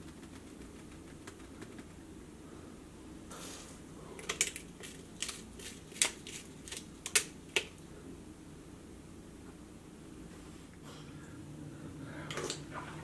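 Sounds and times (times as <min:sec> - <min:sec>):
pepper shaker clicking: 0:00.0 - 0:02.0.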